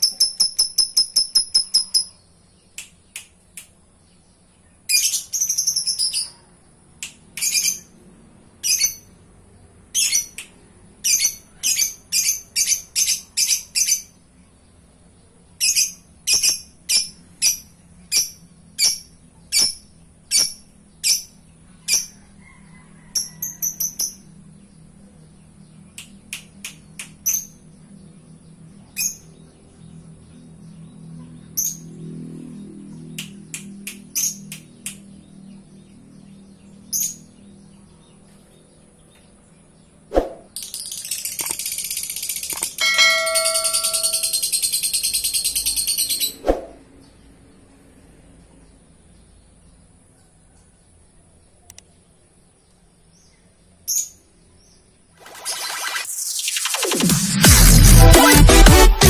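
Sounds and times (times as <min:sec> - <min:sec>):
lovebird chirping: 0:00.0 - 0:03.2, 0:04.0 - 0:08.0, 0:08.6 - 0:09.2, 0:09.9 - 0:14.2, 0:15.5 - 0:24.3, 0:40.4 - 0:46.5.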